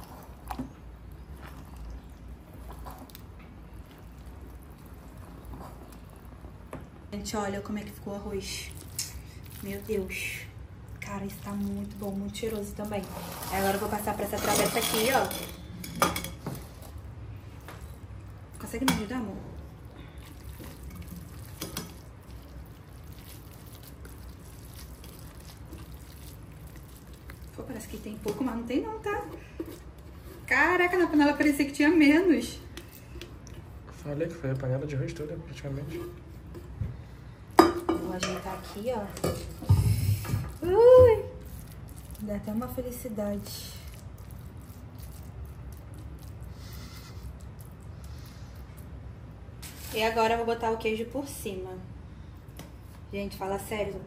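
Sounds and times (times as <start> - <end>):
wet scooping and scraping: 11.0 - 15.2, 19.8 - 30.7, 39.8 - 49.0
spoon stirring thick rice: 20.2 - 28.6.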